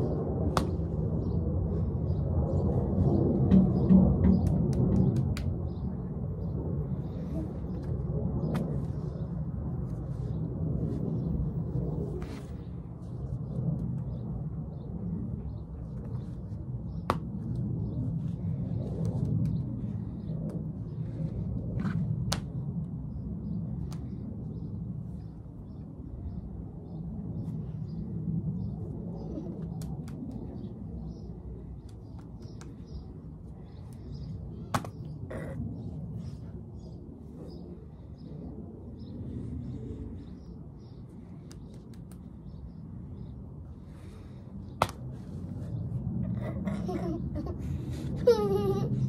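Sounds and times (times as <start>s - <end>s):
steady low rumble: 0.0s - 49.0s
tortillas slapping: 34.7s - 35.1s.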